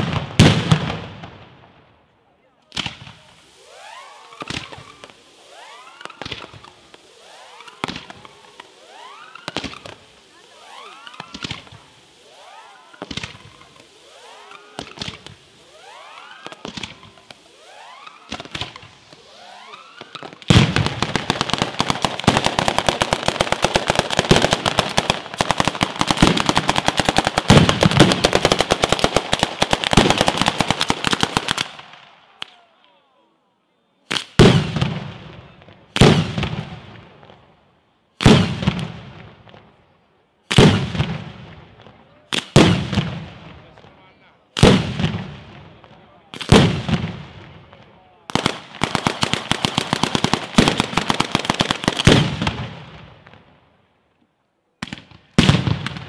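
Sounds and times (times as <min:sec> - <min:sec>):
rapid firecracker bangs: 0:00.0 - 0:01.6, 0:02.7 - 0:32.6, 0:34.1 - 0:37.4, 0:38.2 - 0:39.8, 0:40.5 - 0:43.9, 0:44.5 - 0:53.5, 0:54.8 - 0:56.0
whistling crackling fireworks: 0:00.0 - 0:53.9, 0:54.8 - 0:56.0
heavy firework bangs with echo: 0:20.1 - 0:32.0, 0:34.1 - 0:37.0, 0:38.2 - 0:39.6, 0:40.5 - 0:43.5, 0:44.6 - 0:45.7, 0:46.4 - 0:47.6.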